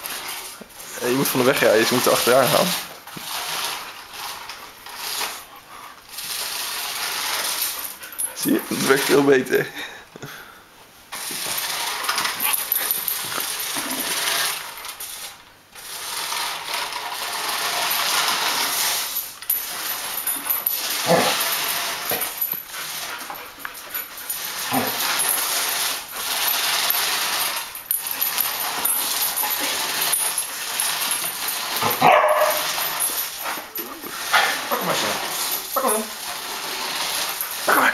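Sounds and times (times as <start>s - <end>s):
toy car motor whirring: 0.0s - 5.5s, 6.1s - 9.4s, 11.1s - 37.9s
dog whining: 20.9s - 21.5s, 24.6s - 25.3s, 33.5s - 36.2s.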